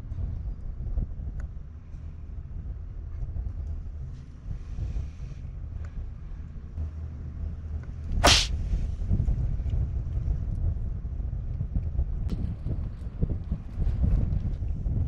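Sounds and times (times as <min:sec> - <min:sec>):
wind rumble on microphone: 0:00.0 - 0:15.0
cat hissing: 0:08.2 - 0:08.5.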